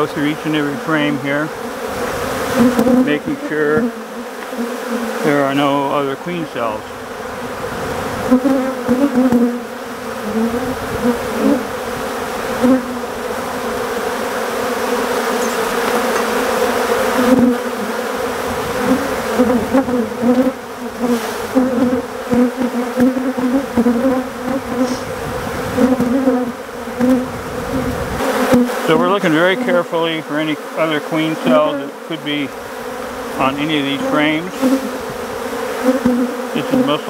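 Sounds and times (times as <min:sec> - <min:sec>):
bees buzzing around hive: 0:00.0 - 0:37.0.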